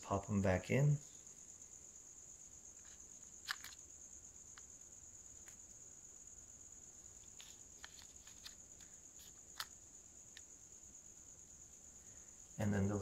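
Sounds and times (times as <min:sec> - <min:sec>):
plastic clicks of earbud case: 0:02.8 - 0:03.8.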